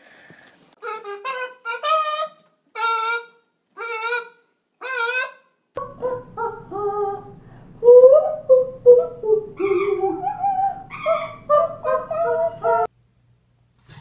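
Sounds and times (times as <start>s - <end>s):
parrot singing: 0.8s - 12.9s
woman singing: 5.8s - 12.9s.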